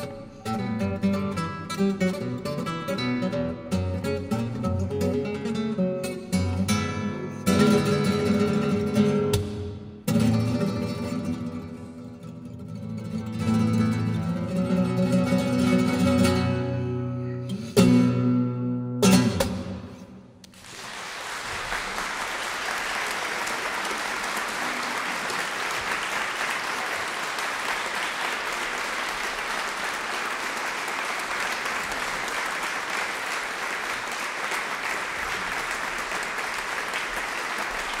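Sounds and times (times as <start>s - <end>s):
audience applause: 20.5s - 38.0s.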